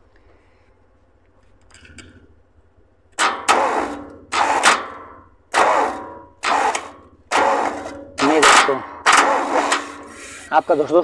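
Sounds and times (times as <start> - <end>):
starter motor cranking engine: 3.2 - 10.6.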